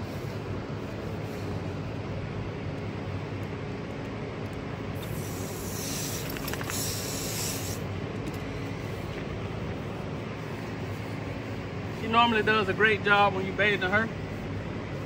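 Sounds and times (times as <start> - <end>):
low background rumble: 0.0 - 15.0
hose spraying water: 5.0 - 7.8.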